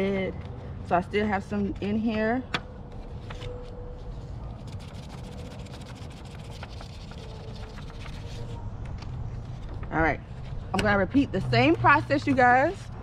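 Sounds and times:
paper crinkling and tapping: 0:04.6 - 0:11.2.

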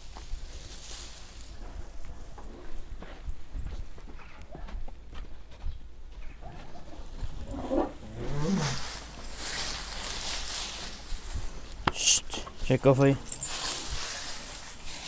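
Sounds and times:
hay rustling: 0:00.0 - 0:02.7, 0:07.0 - 0:15.0
cattle low call: 0:06.4 - 0:10.2.

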